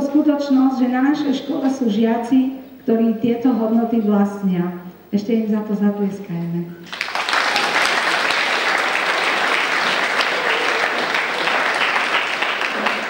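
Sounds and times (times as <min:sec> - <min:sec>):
crowd clapping: 0:06.8 - 0:13.0.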